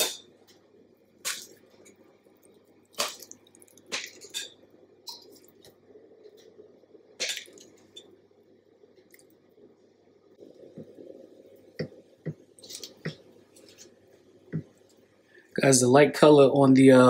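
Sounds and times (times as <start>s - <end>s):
frosting squishing: 0.0s - 8.1s, 10.4s - 15.0s.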